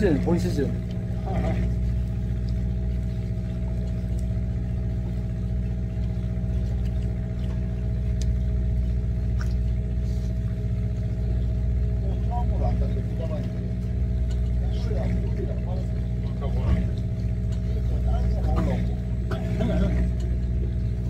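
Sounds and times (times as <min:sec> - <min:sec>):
boat engine idling: 0:00.0 - 0:21.0
faint clicks: 0:14.2 - 0:14.6.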